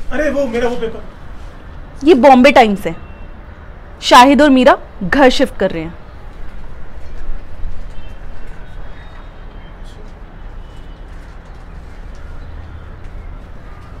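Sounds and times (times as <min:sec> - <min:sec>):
low city rumble: 0:00.0 - 0:14.0
faint bird chirps: 0:07.9 - 0:11.1.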